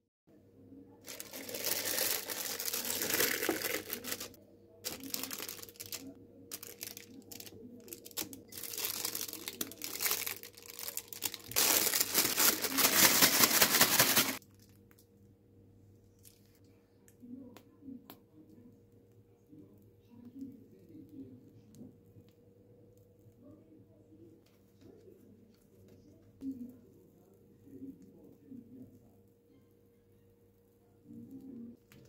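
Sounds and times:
plastic piping bag crinkling: 1.0 - 14.6.

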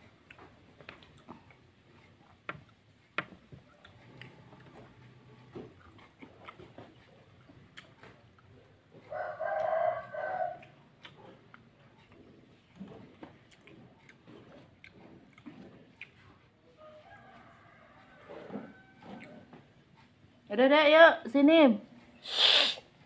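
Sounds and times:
faint clicks and taps: 0.2 - 9.7
rooster crowing: 9.1 - 10.7, 16.8 - 19.4.

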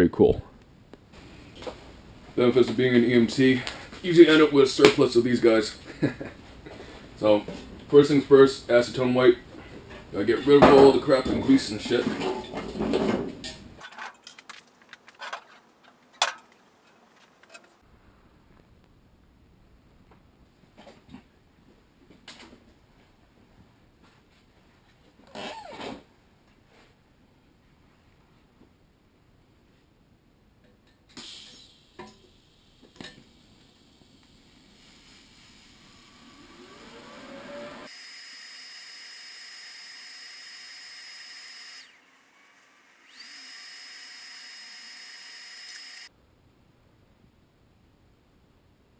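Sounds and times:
welding arc hissing: 31.2 - 36.3.

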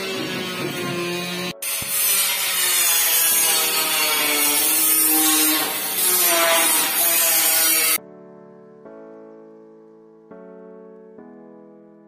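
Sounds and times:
angle grinder grinding steel: 0.0 - 8.0.

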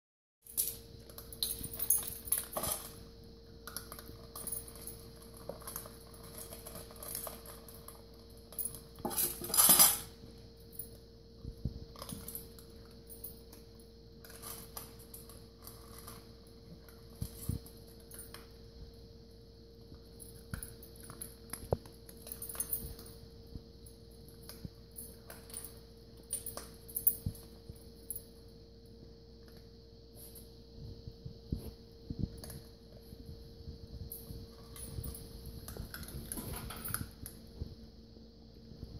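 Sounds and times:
kibble clinking on steel bowls: 0.5 - 10.2, 20.2 - 23.2
dogs crunching kibble: 3.6 - 9.5, 34.2 - 37.4
metal bowls clanking on tile floor: 9.0 - 10.0.

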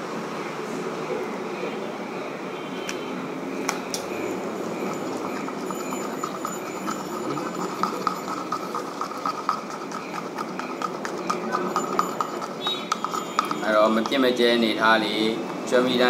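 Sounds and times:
steady background noise: 0.0 - 16.0
stick scraping plastic cup: 4.0 - 16.0.

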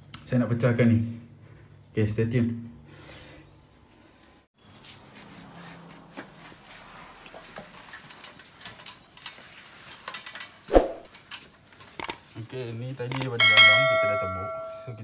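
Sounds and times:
metal ladder clicks and knocks: 7.8 - 14.9.

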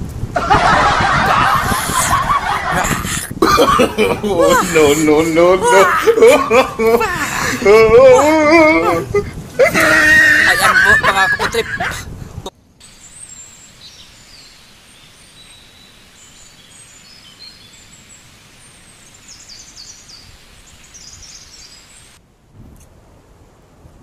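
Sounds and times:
steady outdoor hiss: 0.0 - 24.0
birds chirping: 0.6 - 9.0, 12.8 - 22.2.

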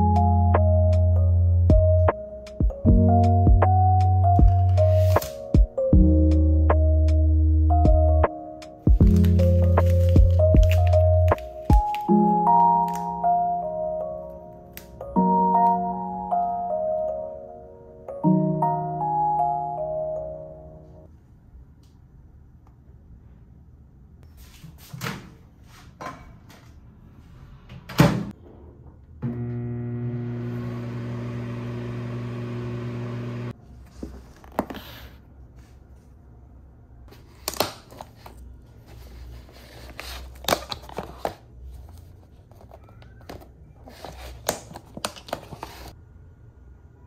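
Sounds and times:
microwave electric hum: 29.2 - 33.6.

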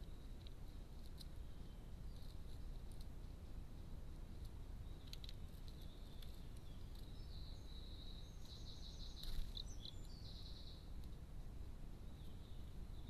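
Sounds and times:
songbird singing with trills: 4.8 - 10.9, 12.0 - 13.0.

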